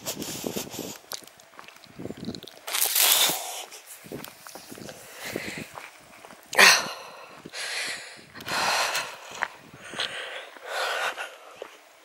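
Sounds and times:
footsteps on dirt path: 0.2s - 11.9s
person breathing heavily: 3.0s - 3.9s, 4.7s - 5.8s, 6.5s - 11.9s.

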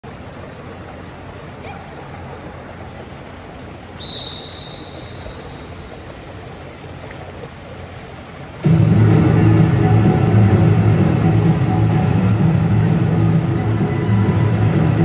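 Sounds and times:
pool hall ambience hiss: 0.0s - 15.0s
loud music: 8.6s - 15.0s.

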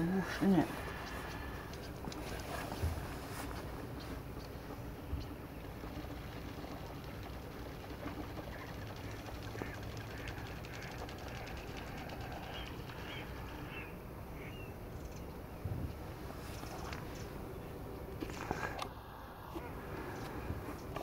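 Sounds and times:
starlings chirping: 0.0s - 17.8s.

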